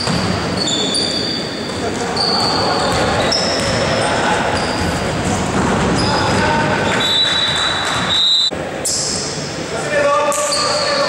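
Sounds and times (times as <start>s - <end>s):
basketball bouncing: 0.0s - 0.6s, 2.4s - 4.0s
sneakers squeaking on floor: 0.0s - 9.4s, 10.3s - 11.0s
murmur of voices: 0.4s - 11.0s.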